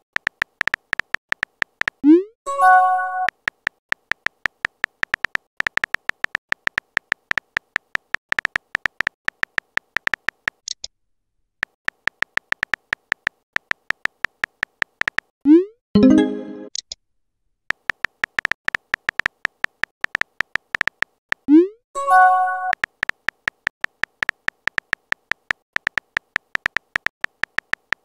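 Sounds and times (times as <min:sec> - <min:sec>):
phone keyboard typing clicks: 0:00.0 - 0:02.0, 0:03.2 - 0:10.9, 0:11.6 - 0:15.3, 0:17.7 - 0:21.5, 0:22.4 - 0:28.0.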